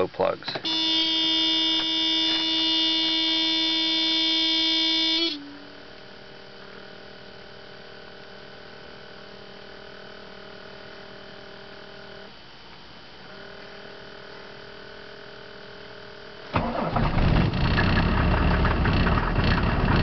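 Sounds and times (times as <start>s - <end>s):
faint electrical hum: 0.0s - 16.6s
car warning buzzer: 0.6s - 5.9s, 16.6s - 17.1s.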